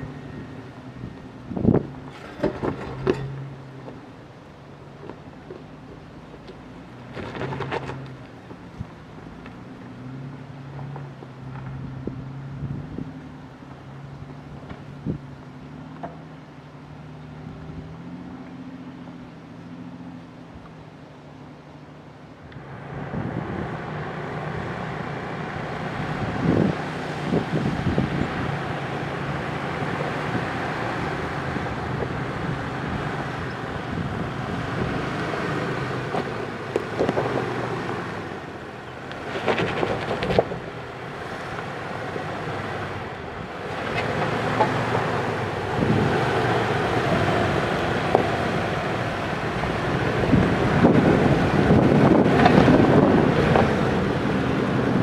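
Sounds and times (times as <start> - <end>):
off-road vehicle engine running: 0.0 - 55.0
wind on microphone: 1.0 - 2.8, 22.8 - 37.6, 42.6 - 55.0.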